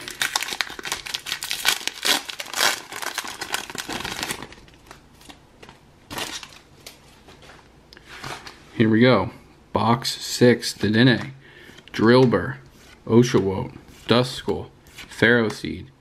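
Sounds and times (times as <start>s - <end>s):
foil wrapper tearing and crinkling: 0.0s - 5.0s
cards rustling: 0.0s - 8.6s, 10.6s - 15.8s.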